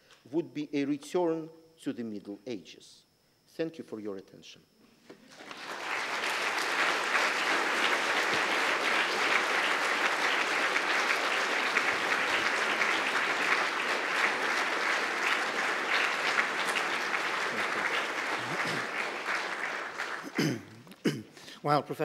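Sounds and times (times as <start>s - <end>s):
audience applauding: 5.3s - 20.8s.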